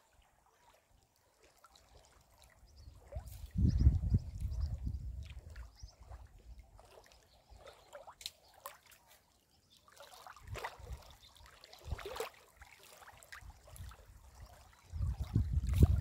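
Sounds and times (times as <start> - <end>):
small waves lapping against shore: 0.0 - 16.0
wind rumble on microphone: 2.7 - 6.6, 13.4 - 16.0.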